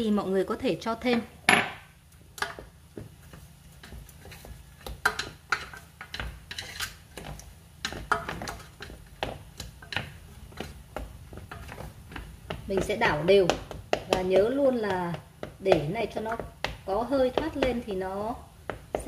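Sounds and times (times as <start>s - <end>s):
utensil scraping metal pot: 4.1s - 10.8s.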